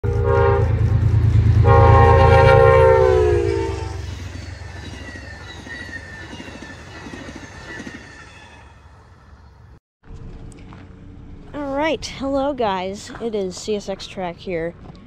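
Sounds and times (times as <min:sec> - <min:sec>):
locomotive horn blast: 0:00.0 - 0:04.2
diesel engine rumble: 0:00.1 - 0:05.3, 0:08.9 - 0:15.0.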